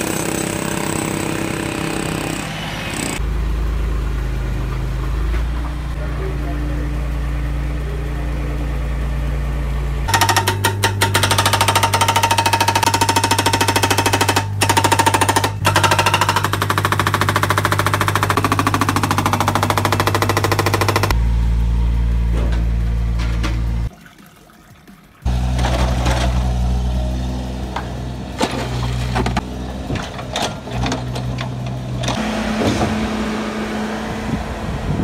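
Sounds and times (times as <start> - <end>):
diesel engine running: 0.0 - 23.9, 25.2 - 35.0
hydraulic breaker hammering: 10.1 - 21.2.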